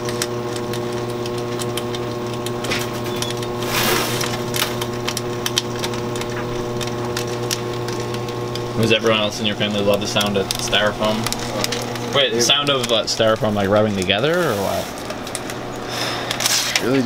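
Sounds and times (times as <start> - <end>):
machine hum: 0.0 - 17.0.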